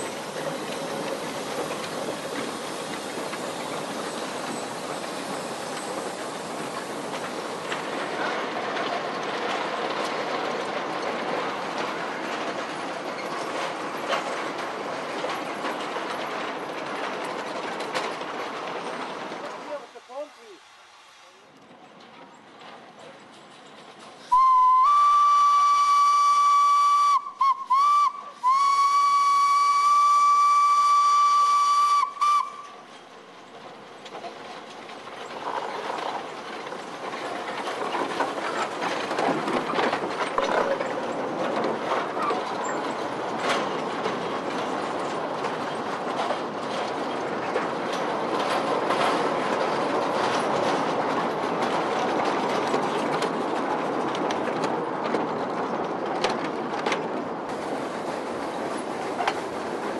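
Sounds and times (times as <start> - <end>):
train running noise: 0.0 - 59.9
steam locomotive whistle: 24.3 - 32.7.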